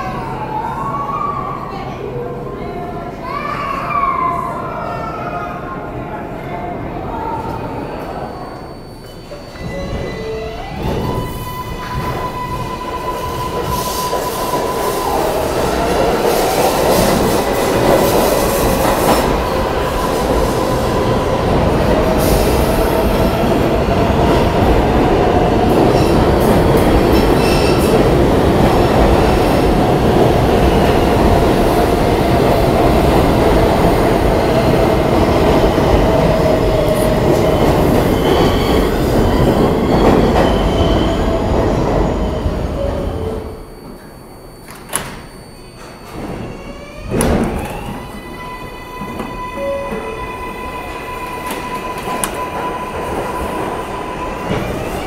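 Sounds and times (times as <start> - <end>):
train squealing: 7.2 - 55.0
train wheels rumbling on rails: 9.1 - 43.9, 45.8 - 55.0.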